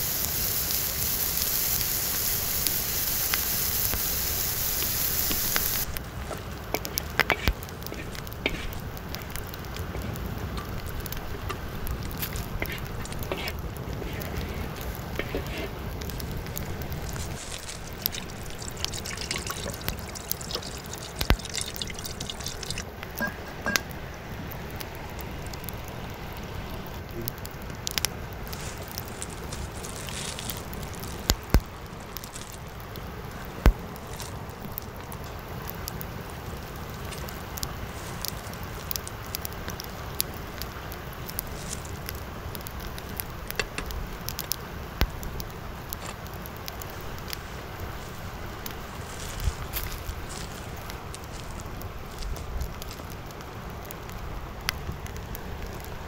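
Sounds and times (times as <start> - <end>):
water pouring into pot: 17.1 - 23.8.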